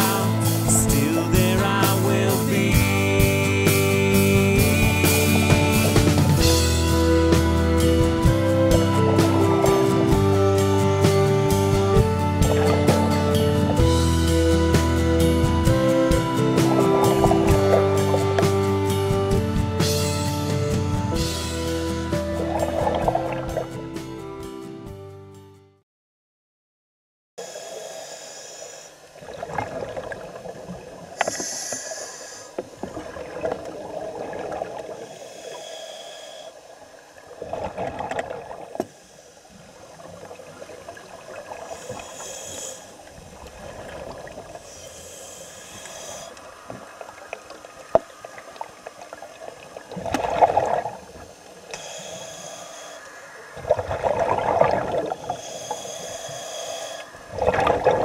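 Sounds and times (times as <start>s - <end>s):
regulator hissing inhalation: 27.4s - 29.1s, 31.2s - 32.8s, 34.9s - 36.7s, 38.8s - 39.8s, 41.6s - 43.2s, 44.6s - 47.0s, 51.2s - 57.4s
exhaled air bubbling: 45.8s - 51.9s, 53.0s - 58.0s.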